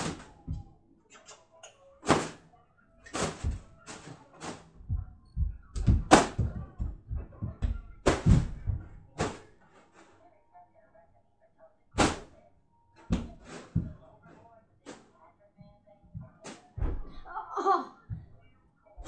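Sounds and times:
ball thuds and slaps: 4.9 - 9.5.

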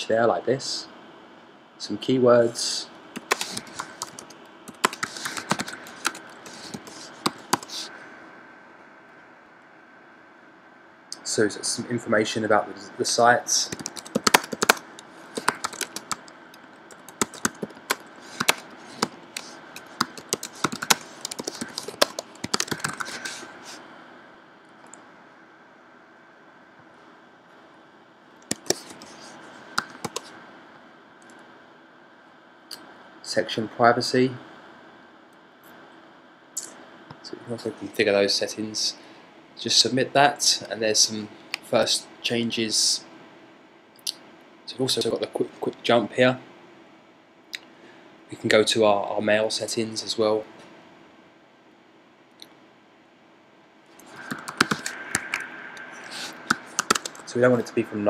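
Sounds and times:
faint room hiss: 0.0 - 58.0
computer keyboard typing: 3.2 - 7.9, 13.6 - 23.5, 28.4 - 30.3, 54.0 - 57.3.

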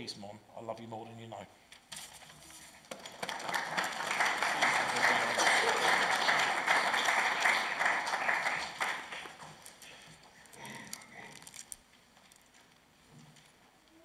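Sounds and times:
people applauding: 2.9 - 9.7.

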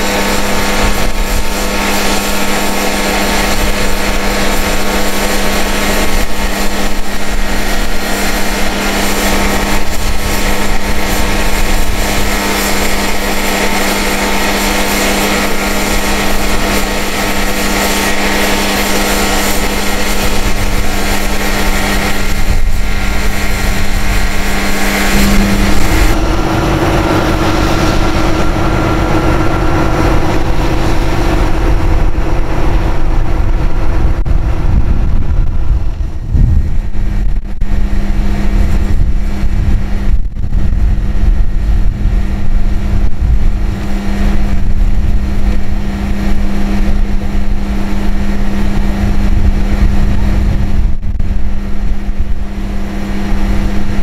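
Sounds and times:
diesel truck engine humming: 0.0 - 36.3.

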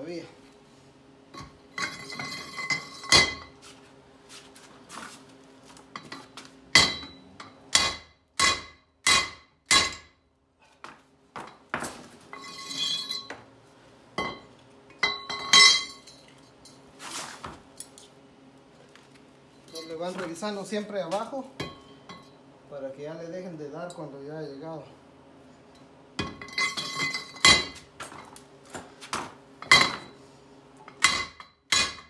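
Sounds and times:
steel scraping and rattling: 12.3 - 13.3.

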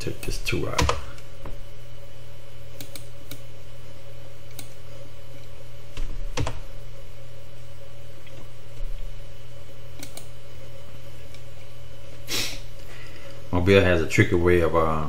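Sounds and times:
steady low hum: 0.0 - 15.0
keyboard keys tapping: 6.0 - 6.6.

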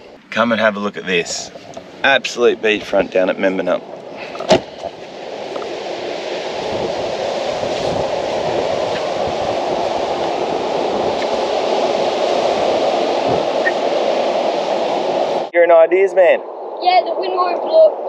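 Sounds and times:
wind: 0.0 - 18.0
surf breaking on beach: 1.1 - 15.5.

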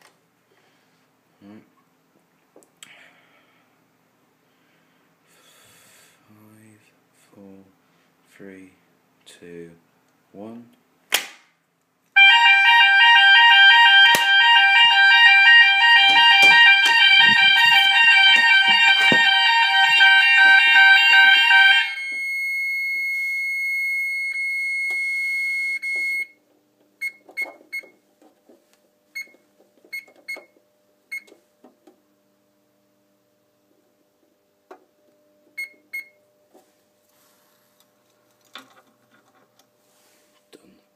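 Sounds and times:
steady high alarm tone: 12.2 - 26.3
fire alarm multi-tone sounders: 12.2 - 26.4.

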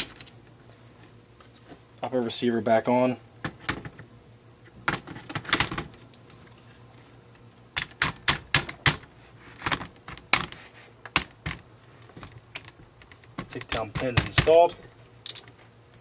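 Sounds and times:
rifle parts clicking and knocking: 15.2 - 15.6.

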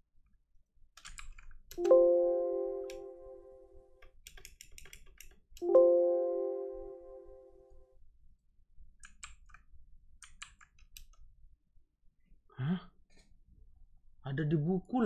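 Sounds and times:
keyboard typing clicks: 1.0 - 3.4, 4.3 - 7.2
computer alert chime: 1.8 - 3.7, 5.6 - 7.5.

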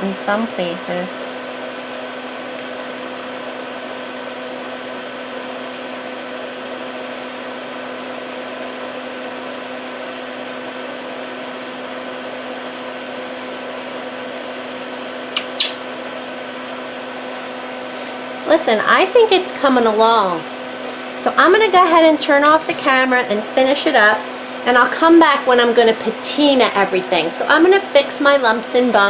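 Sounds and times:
short clicks: 15.3 - 15.8.

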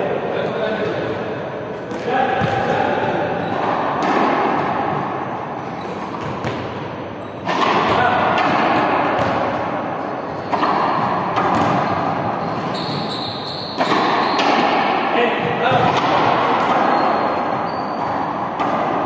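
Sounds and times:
players' voices: 0.0 - 4.3, 15.1 - 17.6
ball bouncing on a court: 1.8 - 19.0.

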